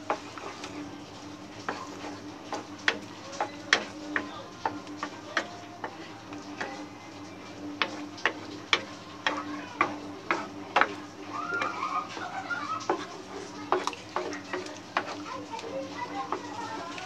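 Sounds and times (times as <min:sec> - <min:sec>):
spatula stirring thick sauce: 0:00.0 - 0:17.0
spatula knocking against pan: 0:02.5 - 0:06.9, 0:07.7 - 0:16.9.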